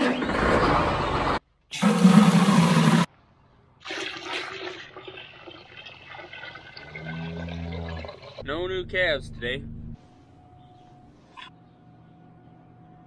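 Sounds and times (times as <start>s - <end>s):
water pouring into a tub: 3.8s - 8.4s.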